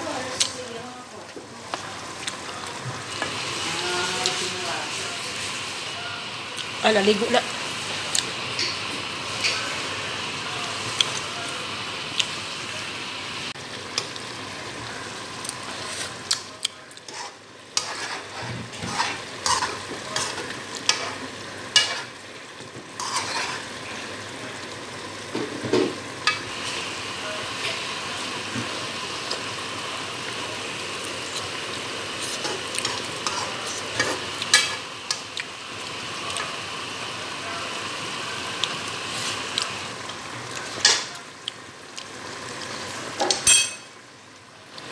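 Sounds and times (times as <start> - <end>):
stew simmering and sizzling: 0.0 - 44.9
spoon scraping a pan: 17.0 - 22.2, 23.0 - 23.8, 32.2 - 35.2.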